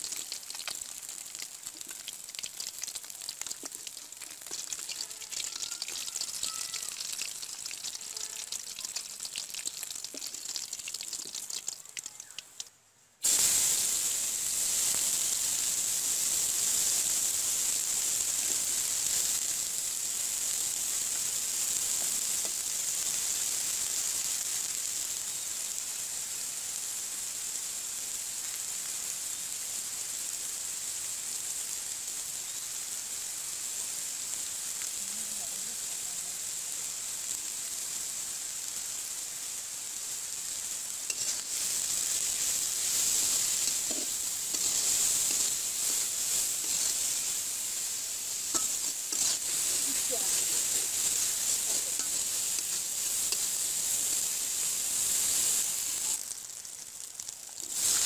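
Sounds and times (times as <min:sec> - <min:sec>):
fish frying in oil: 0:00.0 - 0:58.0
onion and garlic sizzling: 0:00.0 - 0:58.0.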